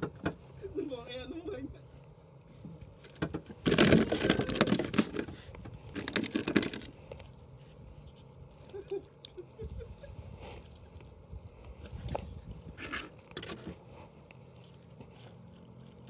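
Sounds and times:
rustling and rattling handling noise: 2.6s - 7.4s.

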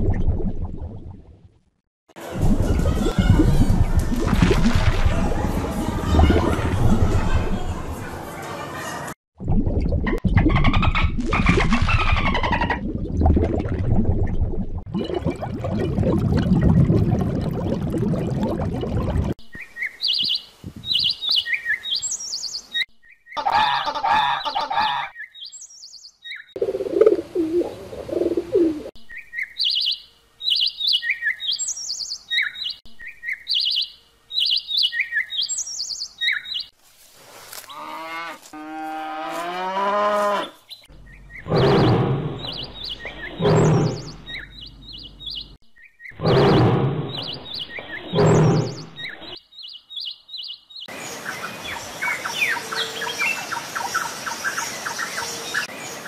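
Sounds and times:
high bird chirps: 29.1s - 36.7s, 40.7s - 50.9s
loud low animal calls: 41.4s - 44.5s.

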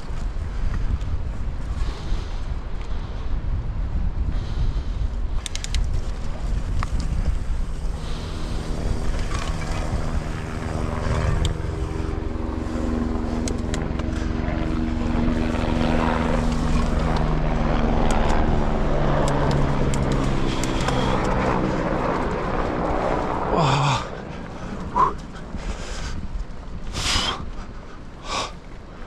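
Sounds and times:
wind on camera: 0.0s - 23.5s
steady droning hum: 0.0s - 29.0s
bike tyres and frame rattling: 5.4s - 14.4s, 19.4s - 27.9s.

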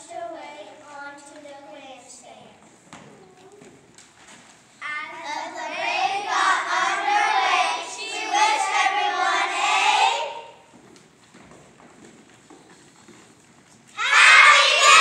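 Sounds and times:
low murmur of voices: 0.8s - 4.1s
children singing together: 4.8s - 10.7s, 14.0s - 15.0s.

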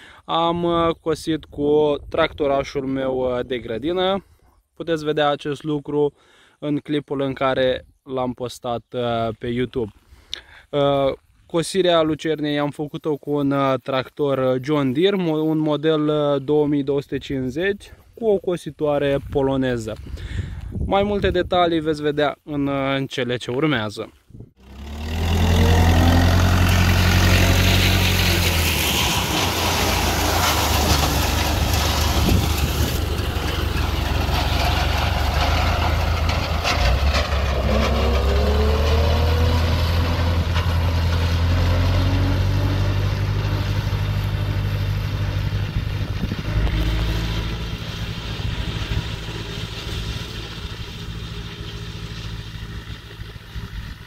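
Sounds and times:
tractor diesel engine humming: 24.6s - 54.0s.

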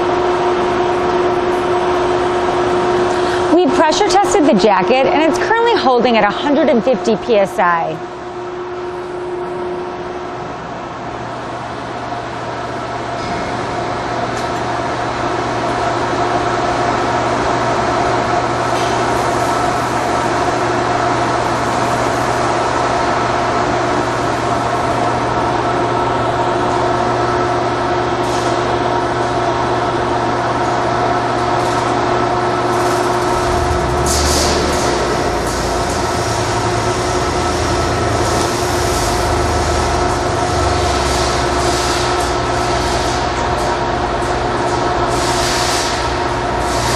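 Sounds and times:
electric motor humming: 32.7s - 41.8s
low rumble: 32.8s - 41.1s.

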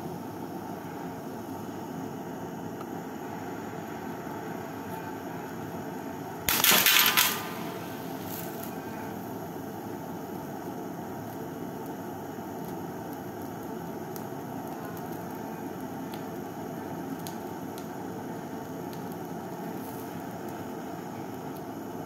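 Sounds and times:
butane torch hissing: 0.0s - 22.0s
glass cracking: 6.5s - 8.7s.

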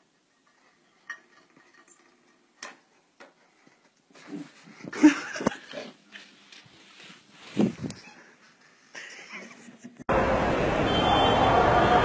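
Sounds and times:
rustling: 0.0s - 8.9s.

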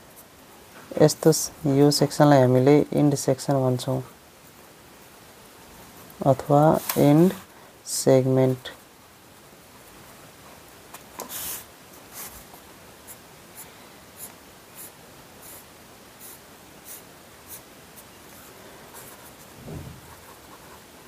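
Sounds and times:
marker scratching on paper: 14.2s - 18.1s.

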